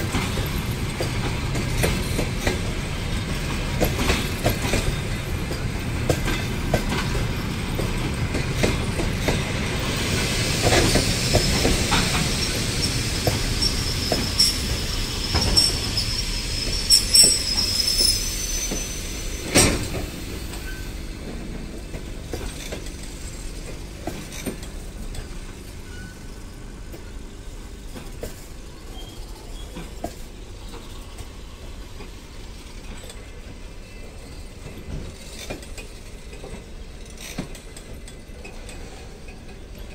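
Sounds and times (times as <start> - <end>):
train wheels rumbling over rail joints: 0.0 - 39.9
high wheel squeal: 10.6 - 20.0, 25.8 - 26.3, 28.9 - 29.8.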